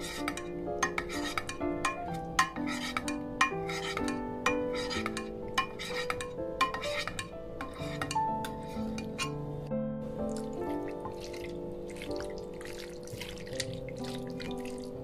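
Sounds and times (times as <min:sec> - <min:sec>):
knife scraping glass dish: 0:00.0 - 0:01.6, 0:02.4 - 0:09.4
light background music: 0:00.0 - 0:15.0.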